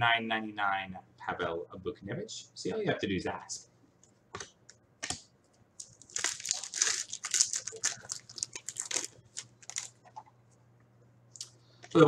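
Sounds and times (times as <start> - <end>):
foil wrapper crinkling and tearing: 5.8 - 10.0.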